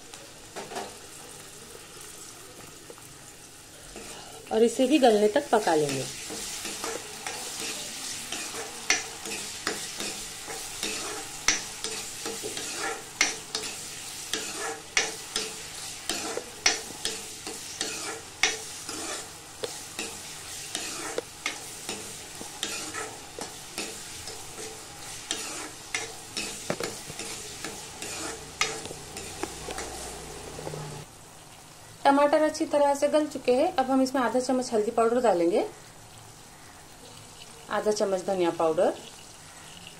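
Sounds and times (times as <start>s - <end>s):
vegetables sizzling in oil: 0.0s - 39.9s
ladle scraping and clinking on pan: 5.9s - 19.3s, 20.0s - 30.0s.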